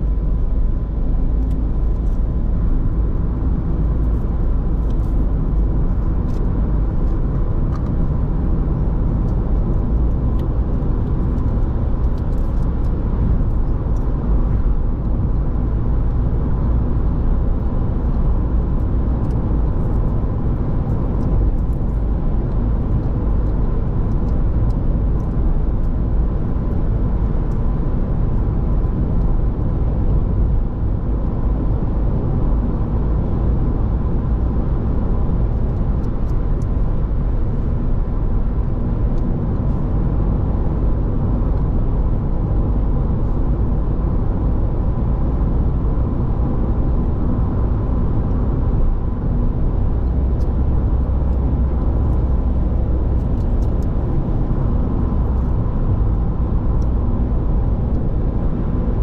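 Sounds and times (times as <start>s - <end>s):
tyre and engine rumble: 0.0s - 59.0s.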